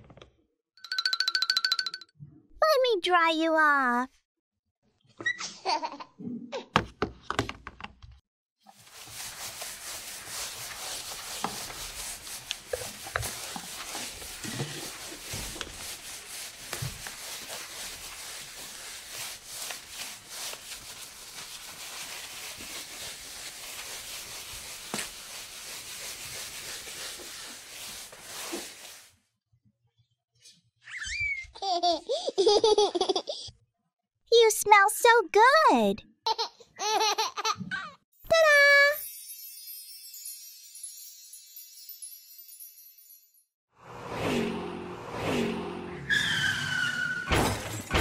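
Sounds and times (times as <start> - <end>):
towel rubbing plastic: 8.7 - 29.2.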